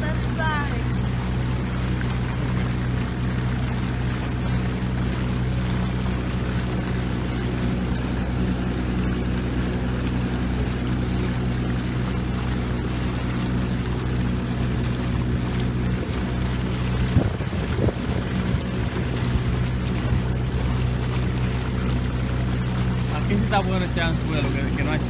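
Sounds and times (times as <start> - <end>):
boat motor running: 0.0 - 25.0
water wash: 0.0 - 25.0
wind noise: 17.0 - 19.5.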